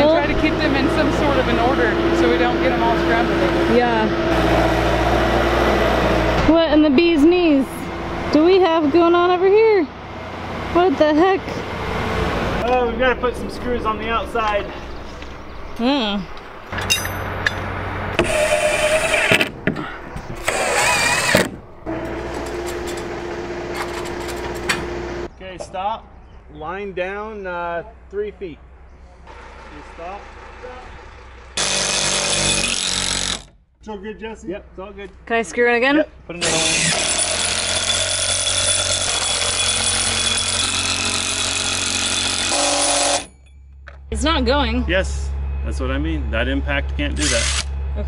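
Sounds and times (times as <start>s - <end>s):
impact driver driving screws: 20.4s - 21.6s.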